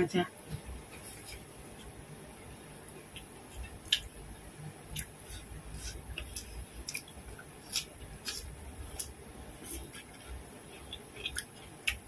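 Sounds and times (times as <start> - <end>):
wet open-mouthed chewing: 4.9 - 12.0.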